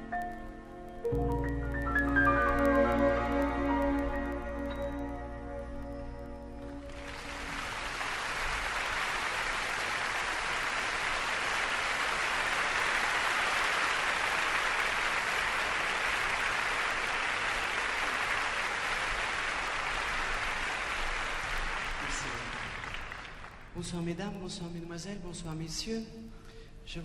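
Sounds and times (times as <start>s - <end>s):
audience applauding: 6.6s - 23.8s.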